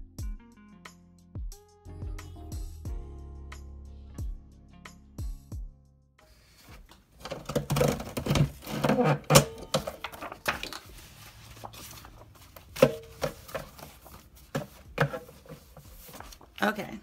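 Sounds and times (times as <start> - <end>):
paper and tools clattering on desk: 6.5 - 16.6.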